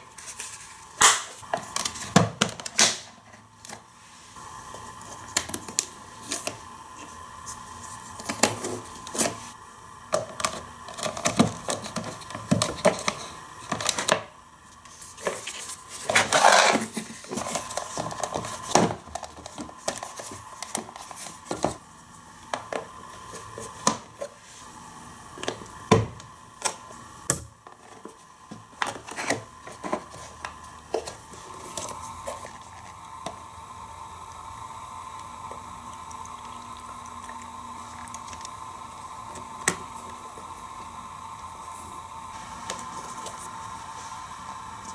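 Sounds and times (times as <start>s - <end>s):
plastic scraping rustle: 14.9s - 21.8s.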